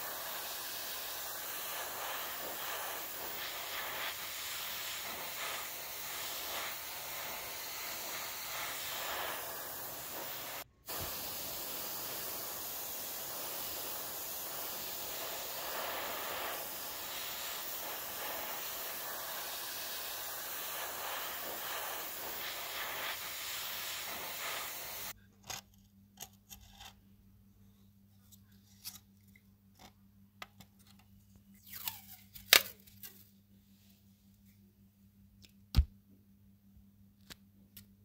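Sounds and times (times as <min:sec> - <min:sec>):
aerosol spray can hissing: 0:00.0 - 0:25.2.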